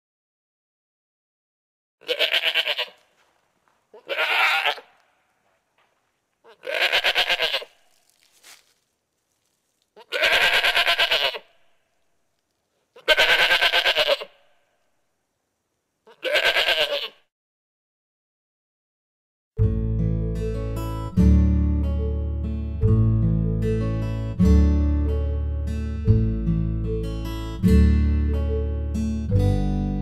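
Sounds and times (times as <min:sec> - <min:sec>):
goat bleating: 0:02.0 - 0:03.3, 0:03.9 - 0:05.2, 0:06.4 - 0:08.3, 0:10.0 - 0:11.6, 0:12.9 - 0:14.5, 0:16.0 - 0:17.2.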